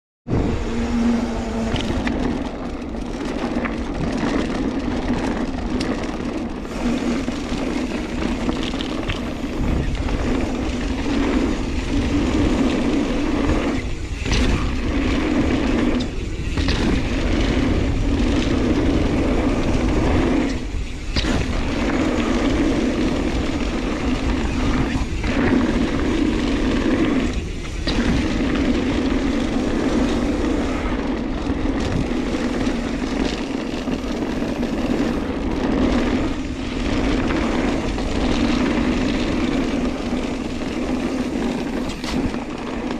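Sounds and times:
low buzz: 0.3 - 4.8
bike tyres on gravel trail: 0.3 - 42.9.

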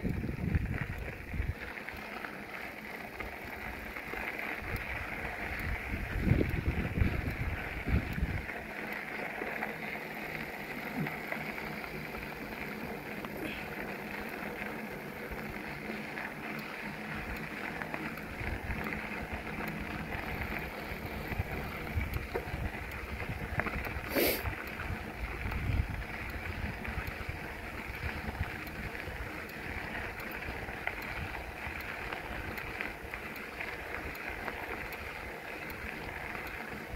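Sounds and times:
wind on microphone: 0.0 - 1.6, 5.6 - 8.4, 20.4 - 28.6
bicycle rolling on trail: 0.0 - 36.9.

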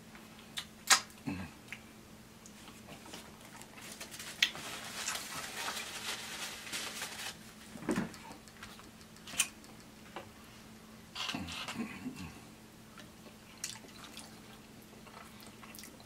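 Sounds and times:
chewing crispy chicken: 13.0 - 16.0.

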